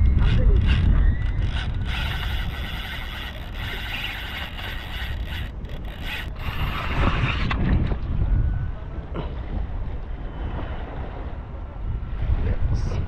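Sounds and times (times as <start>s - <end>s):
fishing reel cranked whirring: 0.0s - 7.2s
wind rumble on microphone: 0.0s - 13.0s.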